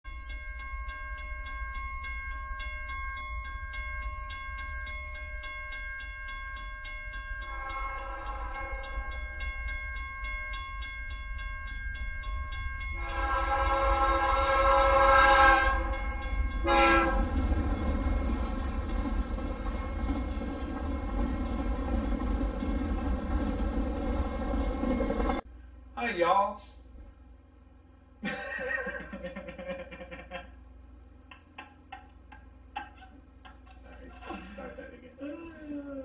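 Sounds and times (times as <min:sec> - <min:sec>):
train horn: 0:07.5 - 0:09.2, 0:13.0 - 0:17.5.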